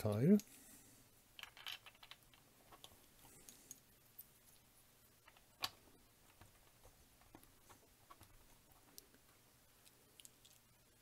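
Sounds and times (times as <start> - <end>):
plastic building bricks clicking: 1.4 - 3.8.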